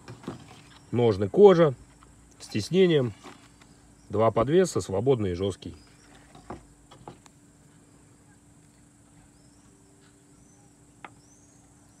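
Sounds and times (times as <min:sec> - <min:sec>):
insect trill: 0:00.0 - 0:12.0
faint high chirps: 0:07.9 - 0:12.0.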